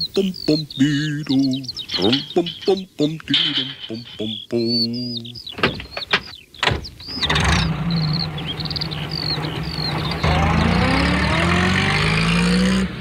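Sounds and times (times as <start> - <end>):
birds chirping: 0.0 - 13.0
van engine accelerating: 6.9 - 13.0.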